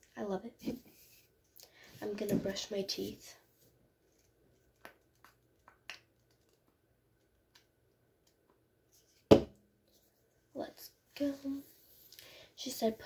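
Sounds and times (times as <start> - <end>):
sharp knock: 9.3 - 9.5.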